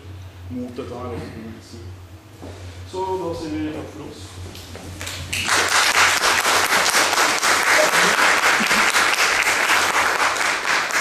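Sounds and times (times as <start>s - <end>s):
audience applauding: 5.0s - 11.0s.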